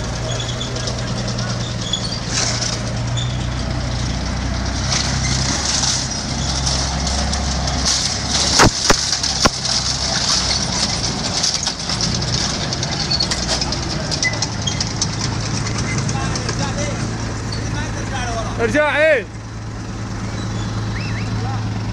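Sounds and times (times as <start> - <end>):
vehicle engine humming: 0.0 - 21.9
sharp cracks: 4.8 - 17.3.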